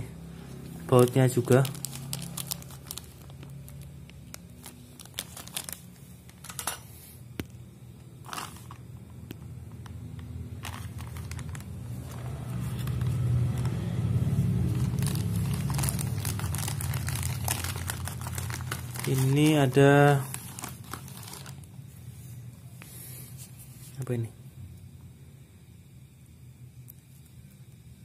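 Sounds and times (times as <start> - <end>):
low steady hum: 0.0 - 28.0
plastic bags crinkling: 0.8 - 6.8, 8.2 - 8.8, 10.2 - 21.8.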